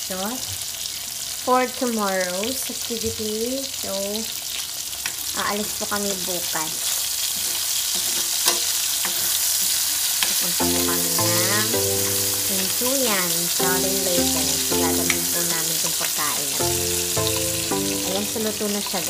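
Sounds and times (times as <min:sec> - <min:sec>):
food sizzling in a wok: 0:00.0 - 0:19.0
tune of held notes: 0:10.6 - 0:19.0.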